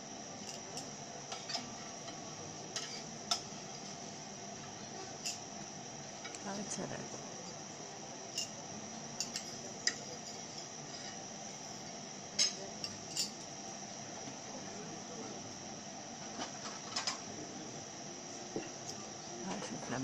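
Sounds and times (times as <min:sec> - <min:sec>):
cutlery clinking in metal pan: 0:02.8 - 0:03.5.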